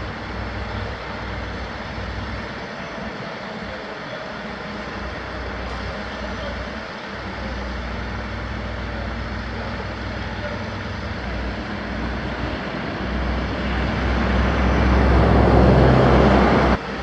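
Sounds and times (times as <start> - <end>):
heavy diesel engine droning: 0.0 - 17.0.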